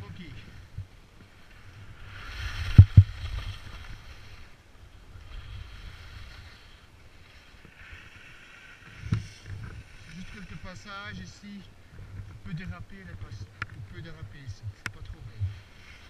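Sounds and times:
wind rumble on microphone: 0:00.0 - 0:16.0
skis scraping on hard snow: 0:01.3 - 0:11.7.

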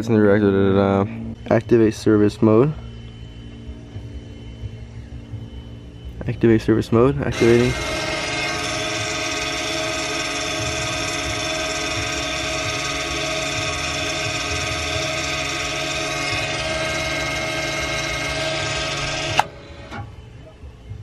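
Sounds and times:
electric brake motor whining: 0:07.2 - 0:20.5.

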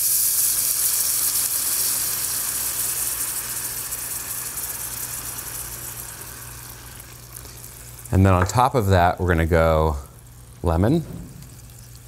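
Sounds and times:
stock sizzling in a hot pan: 0:00.0 - 0:12.0
steady low hum: 0:02.0 - 0:12.0.

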